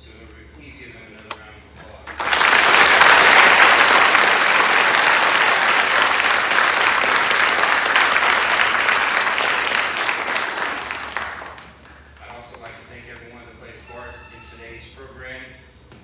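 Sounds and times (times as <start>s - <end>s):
large audience applauding: 2.0s - 12.3s.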